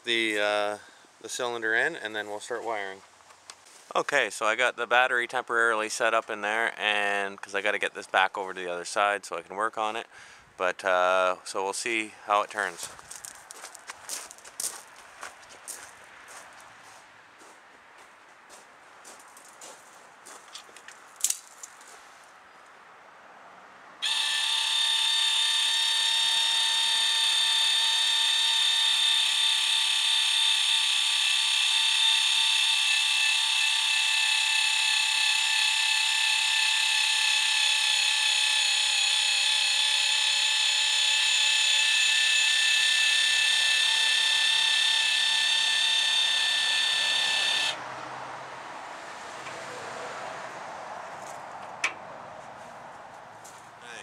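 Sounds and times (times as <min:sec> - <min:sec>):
electric motor whining: 0:24.0 - 0:47.8.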